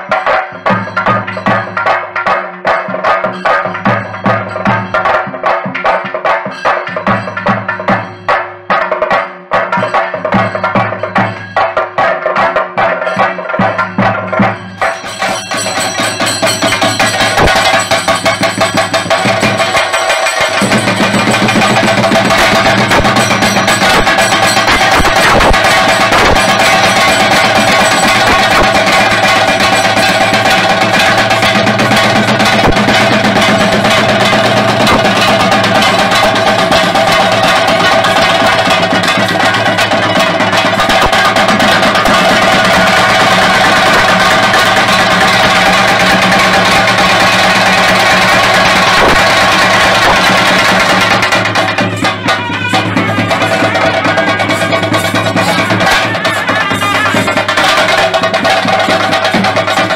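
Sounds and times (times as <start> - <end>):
drums played fast with sticks: 0.0 - 59.9
wind instrument high notes: 48.2 - 58.2.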